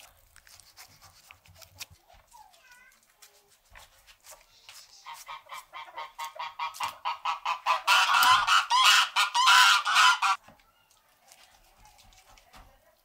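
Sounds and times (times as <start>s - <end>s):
geese honking: 5.2s - 10.4s.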